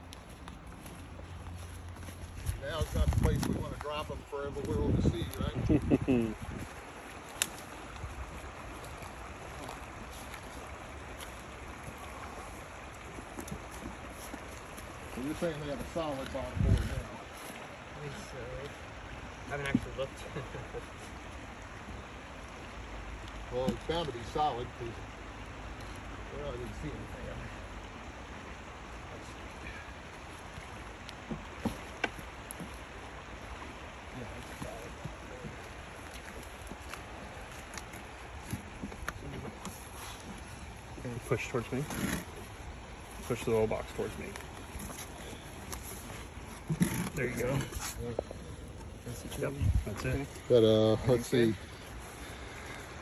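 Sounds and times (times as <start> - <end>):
faint light ticks: 0.0 - 1.0, 7.3 - 8.1, 23.2 - 24.2, 31.0 - 32.8
river water flowing: 0.0 - 53.0
rushing outdoor noise: 0.0 - 53.0
wind rumble on microphone: 2.3 - 6.9, 16.5 - 17.3, 49.4 - 50.2.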